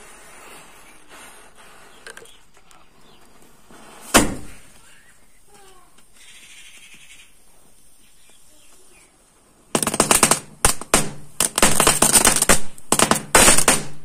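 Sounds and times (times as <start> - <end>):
firecrackers cracking rapidly: 9.6 - 14.0.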